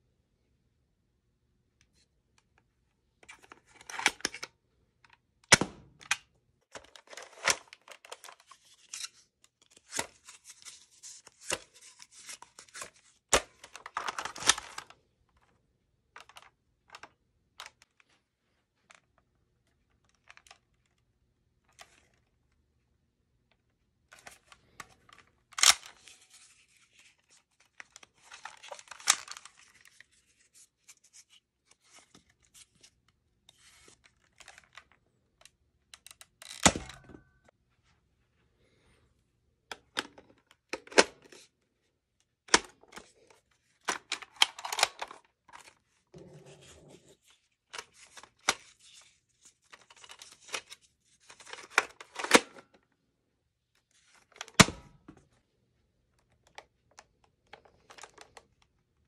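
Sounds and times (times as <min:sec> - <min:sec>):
darts sliding scrapes: 0:46.2 - 0:47.3.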